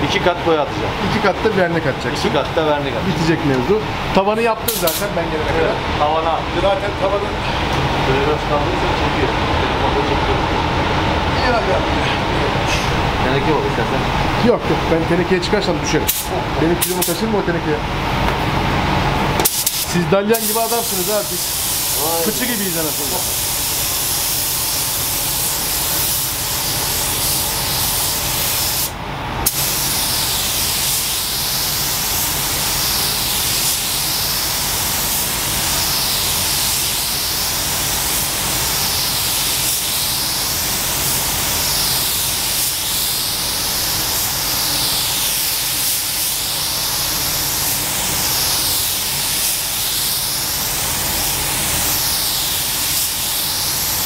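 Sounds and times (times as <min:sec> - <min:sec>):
paint spray gun hissing: 0:04.7 - 0:05.1, 0:16.1 - 0:17.2, 0:19.4 - 0:54.0.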